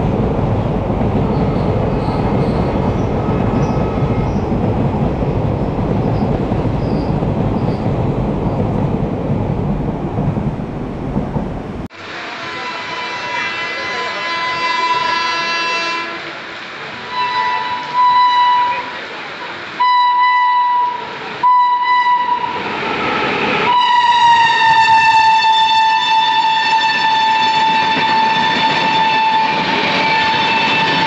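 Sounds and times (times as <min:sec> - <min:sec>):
train passing rumble: 0:00.0 - 0:31.0
train horn blasts: 0:12.0 - 0:16.4, 0:17.0 - 0:19.0, 0:19.8 - 0:22.6, 0:23.7 - 0:31.0.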